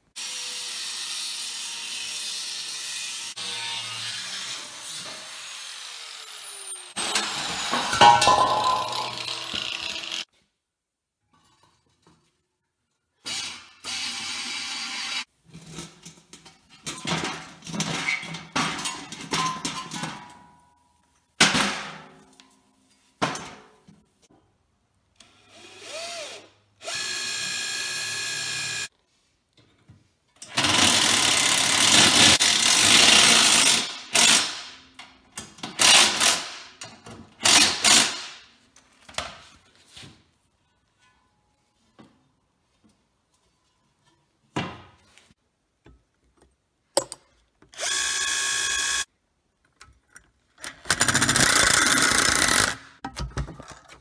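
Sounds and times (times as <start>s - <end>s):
hole saw drill cutting steel: 0.2s - 7.9s, 8.8s - 10.3s, 25.5s - 28.9s, 47.8s - 49.1s
metalworking tool sounds: 1.0s - 10.3s.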